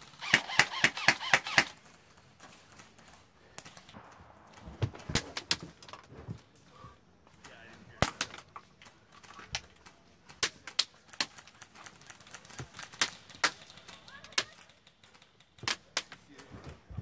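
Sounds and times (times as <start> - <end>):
airsoft gun shots: 0.2 - 1.8, 3.9 - 6.0.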